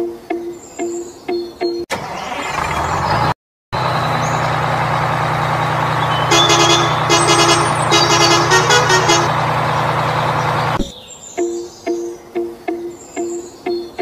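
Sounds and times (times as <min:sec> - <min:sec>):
truck engine running: 0:01.9 - 0:10.9
horn tooting: 0:05.7 - 0:10.8.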